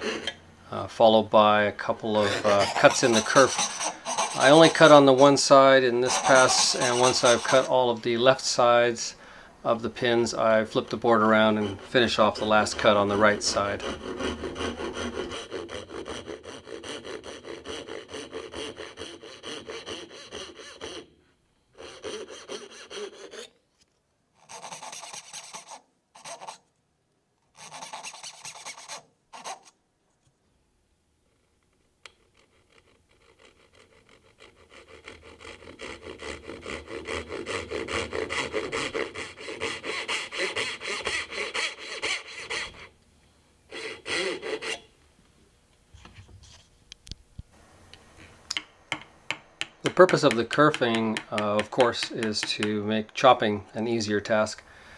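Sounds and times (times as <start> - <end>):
hand saw rasping through wood: 2.1 - 7.8, 11.2 - 21.1, 21.8 - 23.5, 24.5 - 26.6, 27.6 - 29.7, 32.6 - 42.9, 43.7 - 44.9, 49.9 - 52.8.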